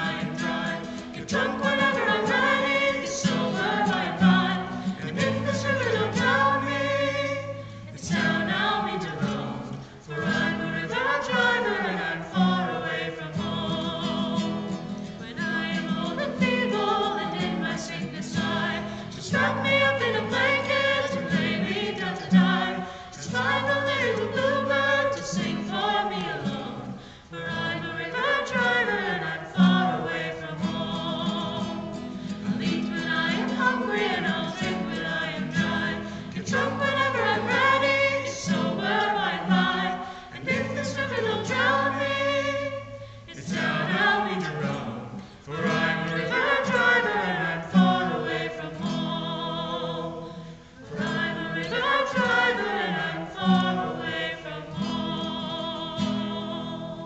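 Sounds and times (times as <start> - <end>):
acoustic guitar: 0.0 - 57.0
group singing folk song: 0.0 - 57.0.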